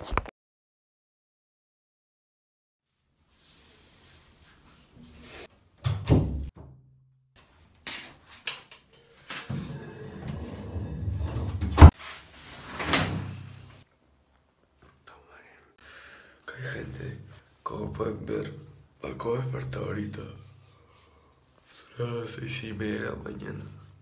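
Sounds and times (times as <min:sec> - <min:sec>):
door knocks and bumps: 0:05.8 - 0:06.9, 0:11.2 - 0:11.9.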